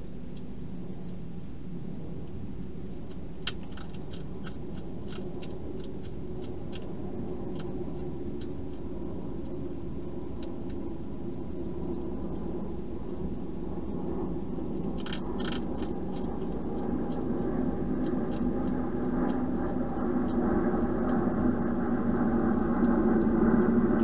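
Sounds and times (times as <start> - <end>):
low background hum: 0.0 - 24.0
hedgehog crunching dry food: 3.0 - 10.9, 14.5 - 24.0.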